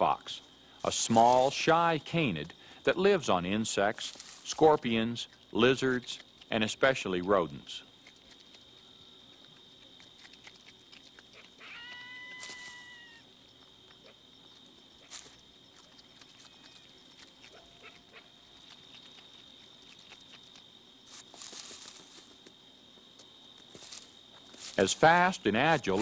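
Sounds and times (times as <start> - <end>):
rustle of leaves: 0.3 - 7.8, 11.3 - 13.2, 15.0 - 19.2, 19.8 - 22.5, 23.6 - 26.0
fox whining call: 11.4 - 13.3.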